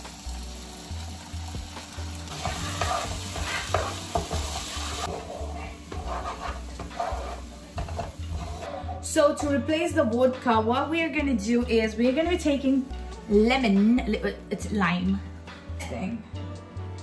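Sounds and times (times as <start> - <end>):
frying pan sizzling: 0.0 - 8.7
wooden spatula scraping pan: 2.3 - 9.2.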